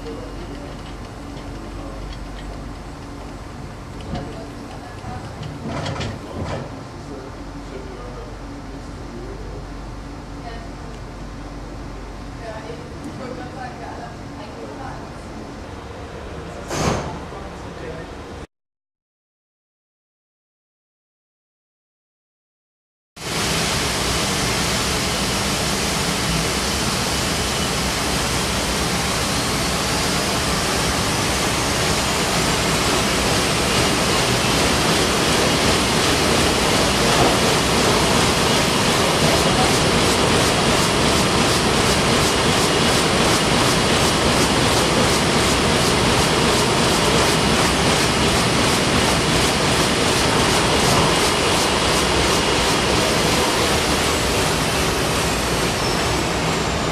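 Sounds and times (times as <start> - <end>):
printing press running: 23.2 - 56.9.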